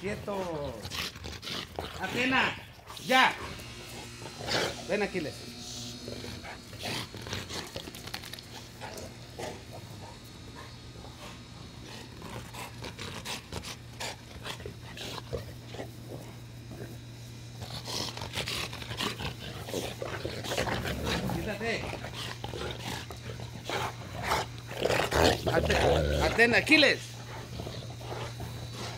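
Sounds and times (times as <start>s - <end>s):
dogs play growling: 0.0s - 28.9s.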